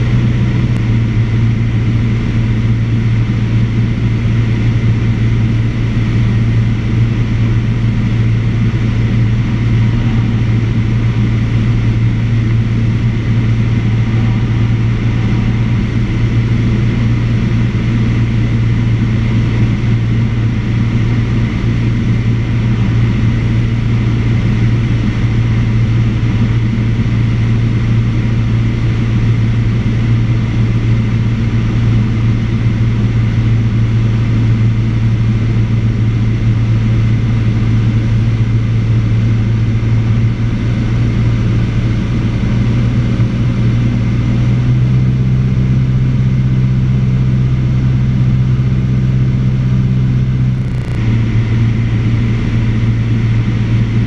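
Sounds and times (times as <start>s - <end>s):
airplane engine droning in cockpit: 0.0s - 54.0s.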